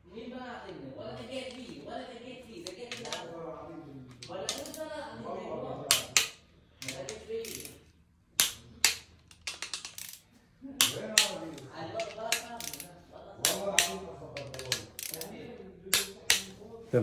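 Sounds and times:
torque wrench clicking: 4.2 - 4.8, 5.9 - 7.8, 8.4 - 10.2, 10.8 - 16.5.

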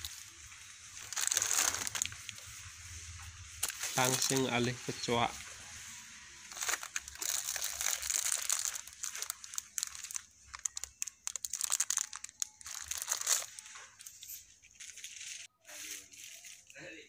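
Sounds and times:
packaging crinkling: 0.0 - 2.6, 3.4 - 4.8, 6.3 - 14.0.

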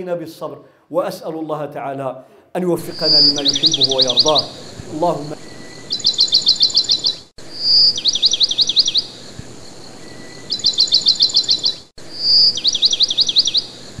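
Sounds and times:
bird high chirps: 2.8 - 14.0
bird whistle and sweeping notes: 2.8 - 14.0.

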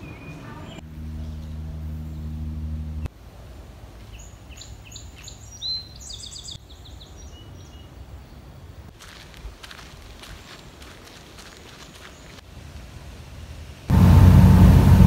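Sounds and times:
songbird chirping and trilling: 0.0 - 3.1, 4.1 - 12.4
low steady hum: 0.0 - 4.0, 13.9 - 15.0.

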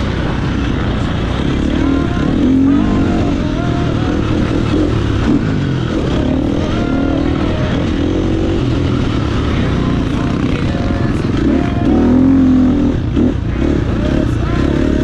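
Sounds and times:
motorcycle engine revving hard: 0.0 - 15.0.

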